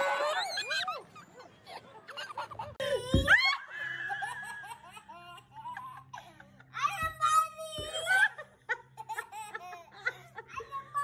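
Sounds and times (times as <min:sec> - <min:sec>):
child laughing and squealing: 0:00.0 - 0:01.3.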